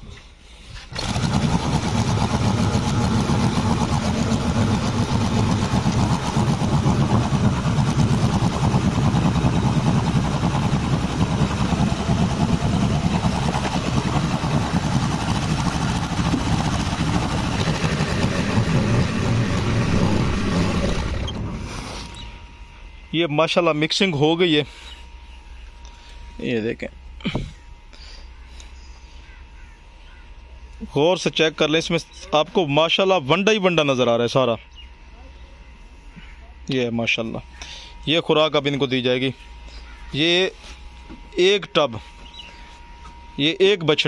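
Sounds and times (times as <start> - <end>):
small engine running: 0.7 - 22.5
drum mixer churning feed: 0.8 - 22.4.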